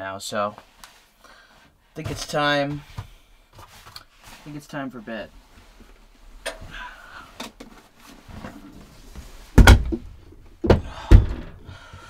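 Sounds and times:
loud thumps: 9.5 - 11.8
knocks: 9.6 - 11.6.

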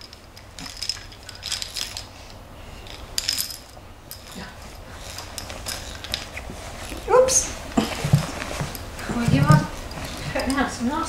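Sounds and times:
baby rattle shaken: 0.6 - 2.1.

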